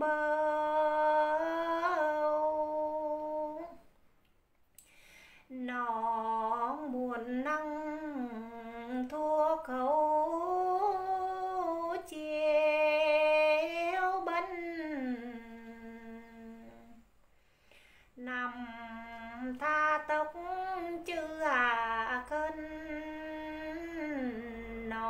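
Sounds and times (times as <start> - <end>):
woman singing unaccompanied: 0.0 - 3.9, 5.5 - 17.1, 18.2 - 25.0
breath: 4.8 - 5.5, 17.2 - 18.2.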